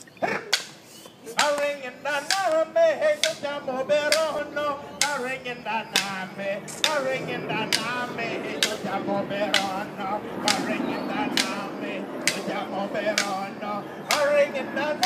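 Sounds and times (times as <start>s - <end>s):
man singing a chant: 1.2s - 15.0s
sharp percussive clacks: 5.9s - 7.1s, 9.5s - 9.8s, 10.4s - 13.4s.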